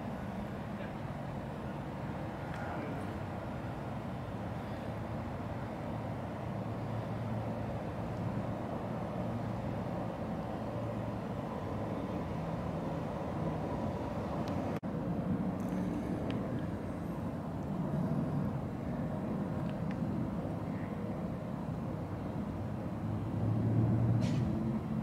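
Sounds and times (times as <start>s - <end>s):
low rumble of traffic: 0.0s - 25.0s.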